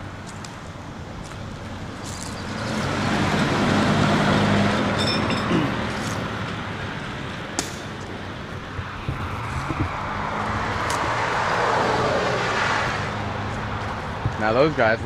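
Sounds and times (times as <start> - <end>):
vehicle driving past: 2.3 - 6.4, 8.8 - 14.3.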